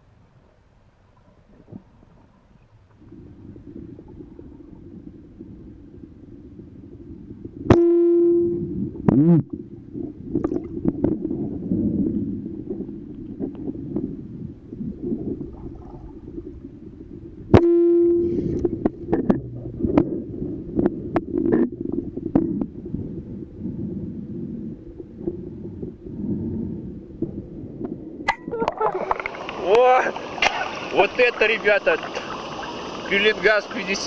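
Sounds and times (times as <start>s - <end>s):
low underwater rumble: 0.0s - 34.0s
brief ringing tone: 7.7s - 8.8s, 17.6s - 18.5s.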